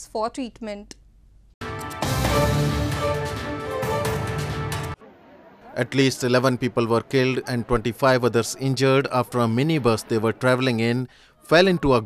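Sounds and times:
news theme music: 0:01.6 - 0:05.0.

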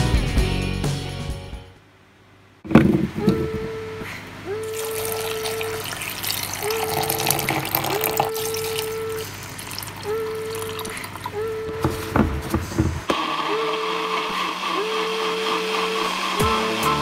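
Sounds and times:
steady hum: 0:01.8 - 0:16.6
water pouring into plastic cup: 0:04.7 - 0:11.4.

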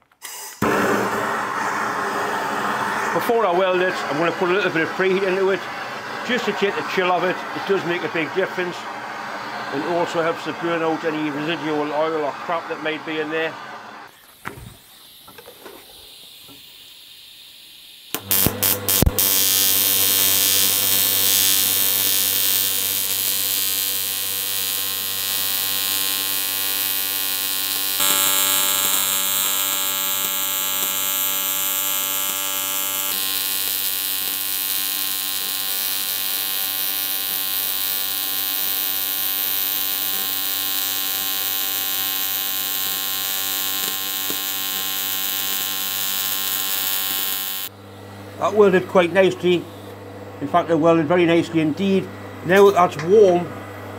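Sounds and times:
welding arc buzzing with hiss: 0:00.0 - 0:08.7, 0:14.1 - 0:47.8
welding arc crackles: 0:14.1 - 0:47.7.

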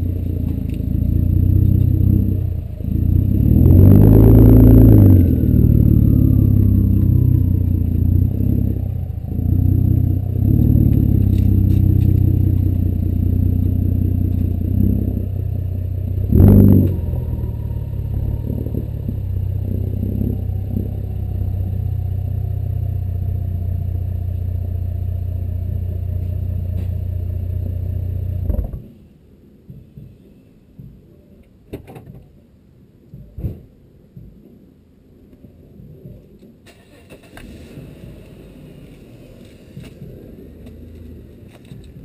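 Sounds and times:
car engine revving: 0:00.0 - 0:28.9
turbo whine: 0:00.0 - 0:28.9.

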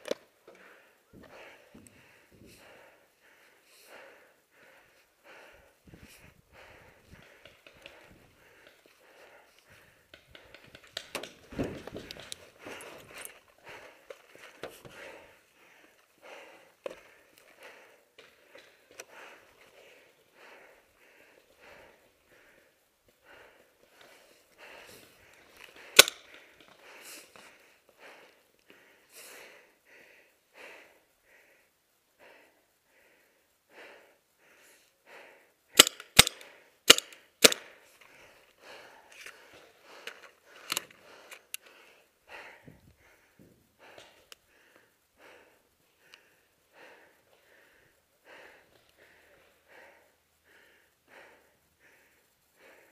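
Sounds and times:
heavy breathing: 0:00.0 - 0:52.9
paintball marker shots: 0:25.8 - 0:26.4, 0:35.8 - 0:37.8.

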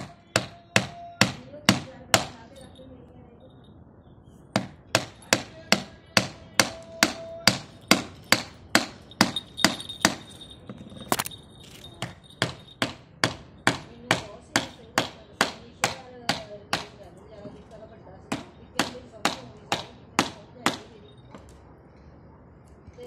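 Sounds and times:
hammer striking chisel in wood: 0:00.0 - 0:02.4, 0:04.5 - 0:10.3, 0:12.0 - 0:17.0, 0:18.3 - 0:20.9.

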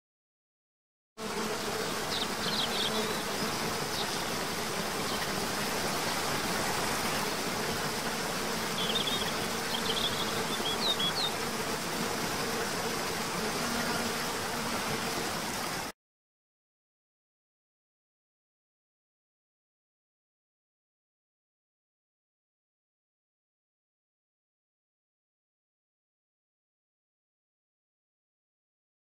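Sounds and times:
faint insect buzz: 0:01.2 - 0:15.9.

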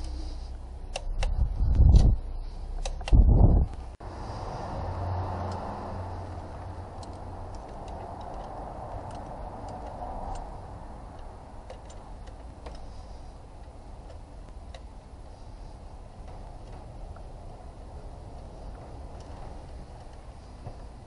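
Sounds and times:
light clicks and taps: 0:06.3 - 0:10.5.

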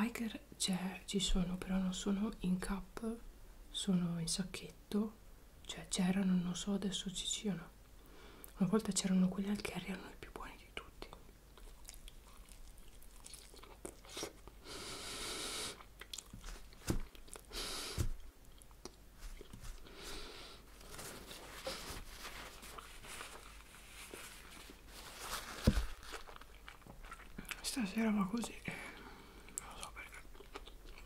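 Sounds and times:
chewing and crunching food: 0:11.5 - 0:14.6, 0:15.8 - 0:17.5, 0:18.2 - 0:27.7, 0:28.4 - 0:31.0.

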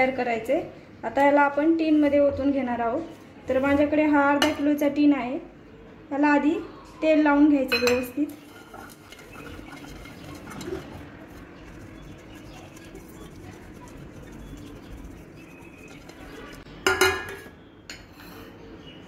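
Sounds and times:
pastry brush scrubbing cake tin: 0:08.3 - 0:16.6.

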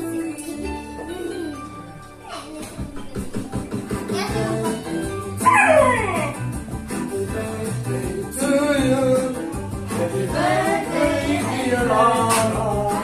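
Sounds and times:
song with singing over bass beat: 0:07.0 - 0:13.0.

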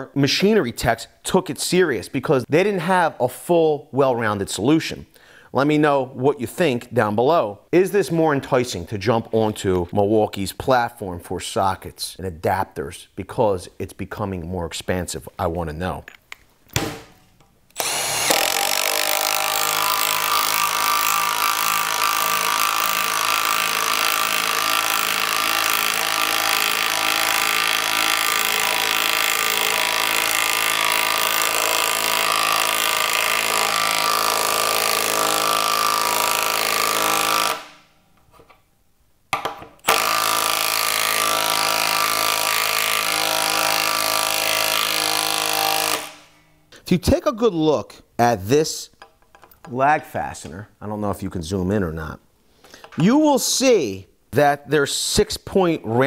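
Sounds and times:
impact driver hammering: 0:17.8 - 0:37.8, 0:39.3 - 0:46.3.

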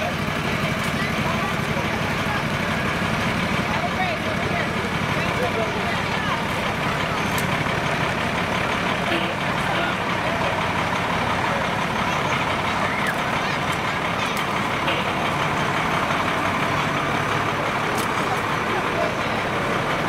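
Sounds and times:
crowd voices: 0:00.0 - 0:20.0
heavy vehicle engine running: 0:00.0 - 0:20.0.

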